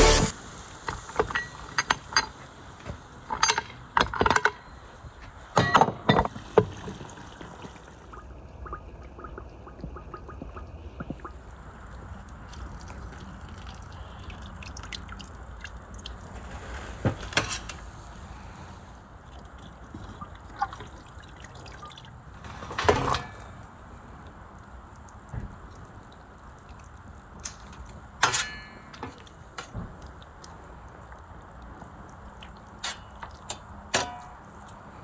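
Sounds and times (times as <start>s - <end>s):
broth bubbling softly: 6.4s - 16.3s.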